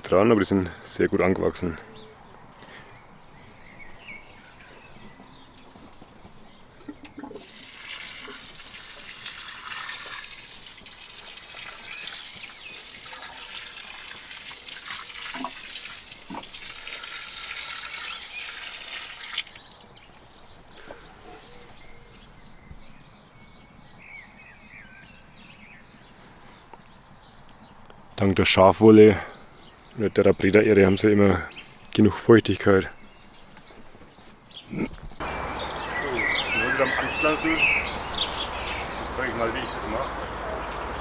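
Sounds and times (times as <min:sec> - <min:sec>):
water pouring onto soil: 0:07.2 - 0:20.1
faint bird chirps: 0:19.6 - 0:28.2.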